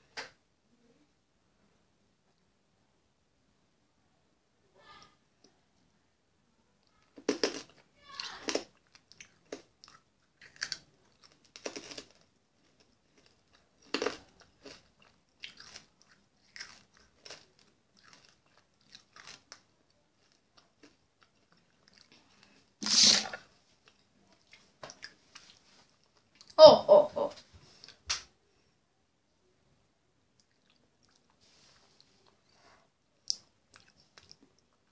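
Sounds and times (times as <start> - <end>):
chewing hard candy crunches: 7.2 - 22.6.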